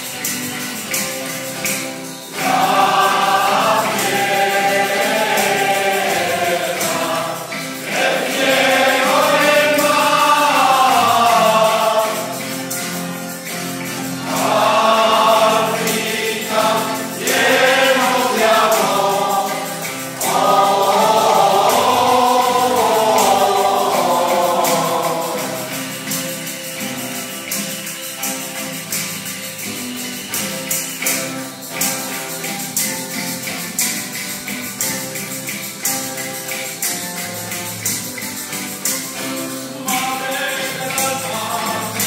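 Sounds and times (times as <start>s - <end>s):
strummed guitars: 0.0s - 42.0s
tambourine shaking: 0.0s - 42.0s
mixed choir singing a carol: 2.2s - 28.7s, 38.7s - 42.0s.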